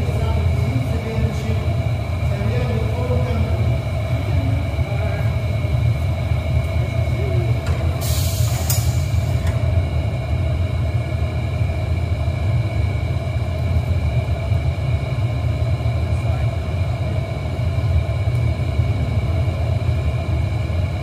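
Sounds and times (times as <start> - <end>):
furnace burners rumbling: 0.0 - 21.0
steady whining tones: 0.0 - 21.0
short hiss: 8.0 - 9.3.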